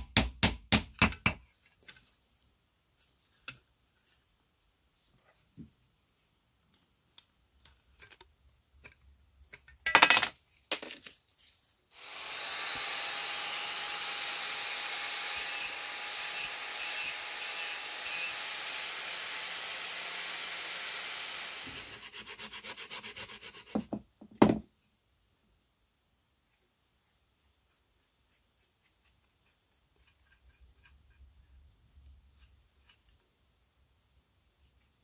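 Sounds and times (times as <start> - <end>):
angle grinder grinding metal: 12.0 - 22.2.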